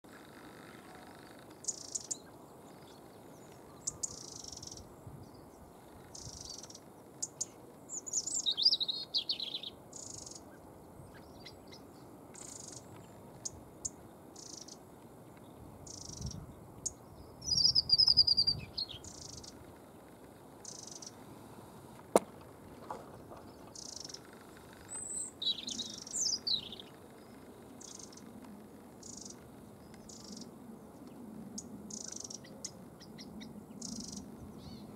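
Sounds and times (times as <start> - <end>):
robin singing: 0.2 - 21.2, 22.1 - 28.4, 29.0 - 34.9
faint high chirp: 0.7 - 14.8, 15.8 - 19.6, 23.6 - 28.4.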